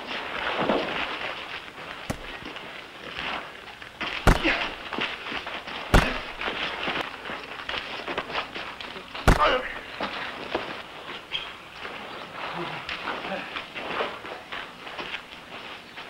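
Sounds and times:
punch impacts: 2.1s - 2.5s, 4.1s - 5.0s, 5.9s - 6.6s, 9.3s - 9.8s.

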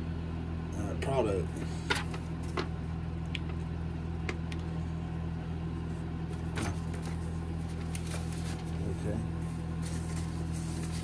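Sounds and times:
low machine hum: 0.0s - 11.0s
paper leaflets crinkling: 7.6s - 9.1s, 9.7s - 11.0s.

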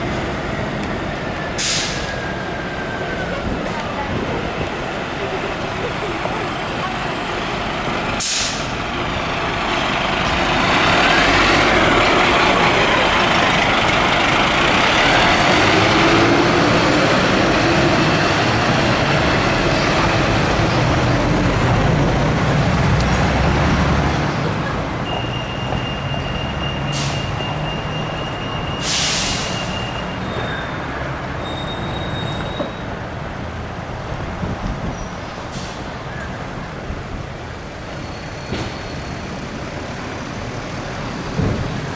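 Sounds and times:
fire engine driving past: 0.0s - 38.1s
air brakes hissing: 1.6s - 2.5s, 8.2s - 8.8s, 26.7s - 27.5s, 28.6s - 30.5s, 35.5s - 35.9s.

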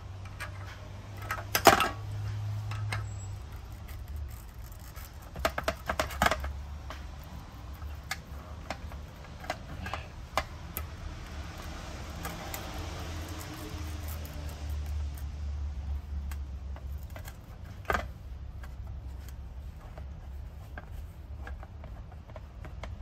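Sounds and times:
metal pliers clicking and clinking: 11.6s - 15.4s.

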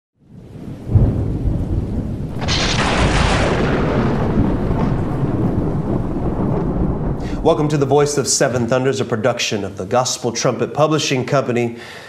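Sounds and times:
thunder rumbling: 0.2s - 9.9s
thunder clap: 0.3s - 9.4s
sharp thunder crack: 0.6s - 8.8s.

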